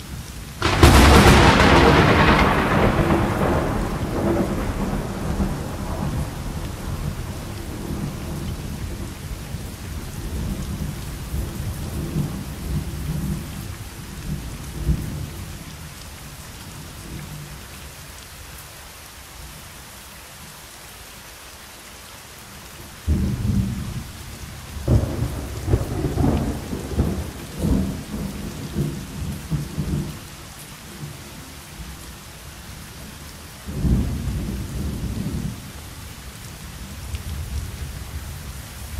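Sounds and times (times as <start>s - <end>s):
rain hissing: 0.0s - 38.9s
thunder claps: 0.6s - 13.6s, 24.7s - 30.2s
rolling thunder: 0.6s - 15.5s, 23.1s - 30.2s, 33.7s - 35.8s.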